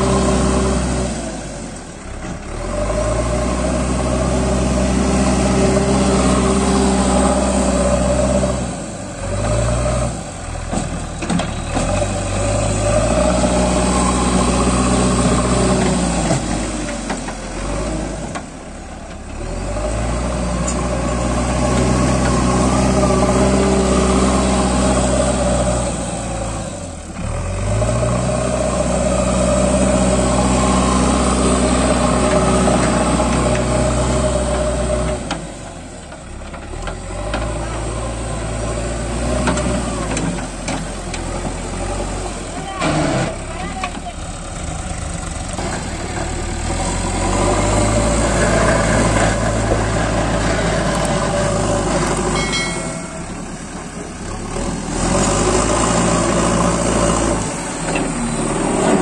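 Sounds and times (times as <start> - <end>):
backhoe diesel engine revving: 0.0 - 59.0.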